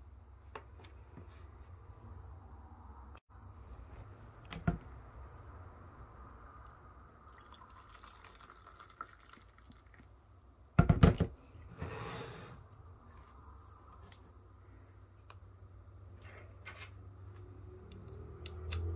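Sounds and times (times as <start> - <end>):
water trickling into a cup: 7.2 - 10.2.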